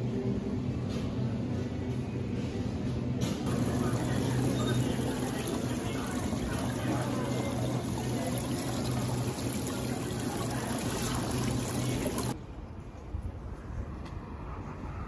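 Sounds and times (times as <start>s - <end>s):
steady low hum: 3.5s - 12.4s
water trickling and splashing: 3.5s - 12.4s.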